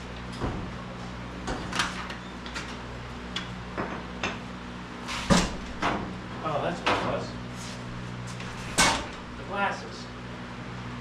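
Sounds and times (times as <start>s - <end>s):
steady low hum: 0.0s - 11.0s
tools and metal parts clunking: 8.4s - 9.2s.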